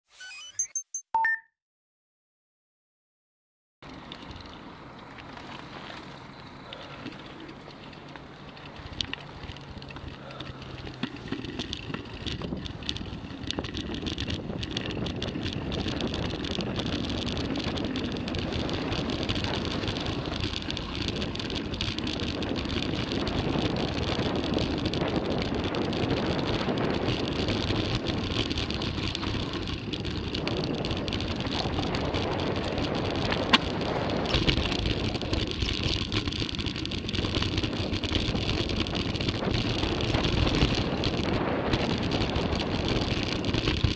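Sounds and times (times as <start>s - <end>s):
bike rattling: 3.8s - 43.9s
tyres rolling over dirt and stones: 3.8s - 43.9s.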